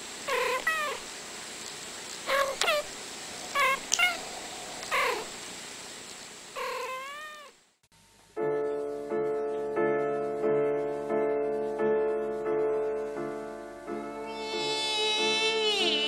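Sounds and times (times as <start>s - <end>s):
cat meowing: 0.3s - 1.0s, 2.3s - 2.9s, 3.5s - 5.3s, 6.6s - 7.6s, 14.1s - 16.0s
piano chords: 8.3s - 16.0s.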